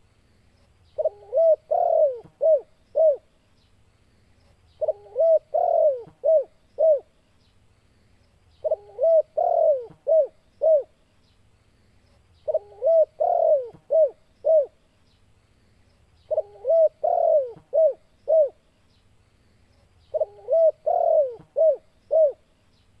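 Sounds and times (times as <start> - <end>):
dove cooing: 1.0 - 3.3, 4.8 - 7.1, 8.6 - 11.0, 12.4 - 14.8, 16.3 - 18.6, 20.1 - 22.4.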